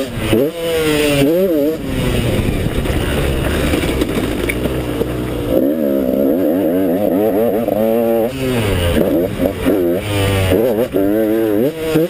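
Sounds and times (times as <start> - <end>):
two-stroke engine running hard: 0.0 - 12.0
wind rushing over microphone: 1.5 - 10.5.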